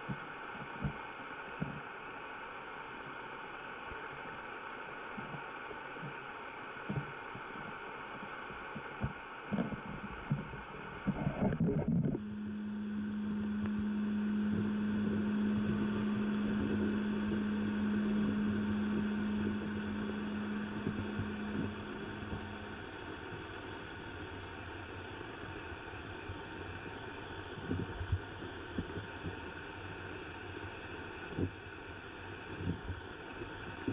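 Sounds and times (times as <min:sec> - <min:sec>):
underwater rushing water: 0:00.0 - 0:33.9
low hum: 0:06.9 - 0:33.9
underwater knocks and taps: 0:08.8 - 0:12.2.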